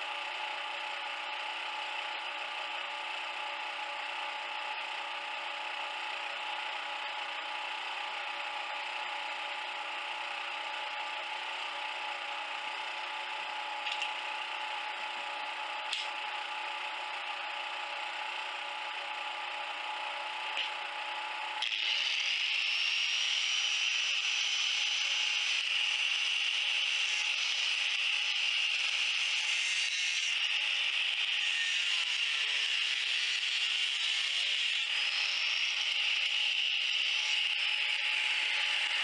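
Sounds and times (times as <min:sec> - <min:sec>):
angle grinder humming: 0:19.8 - 0:39.0
grinder grinding metal: 0:21.6 - 0:39.0.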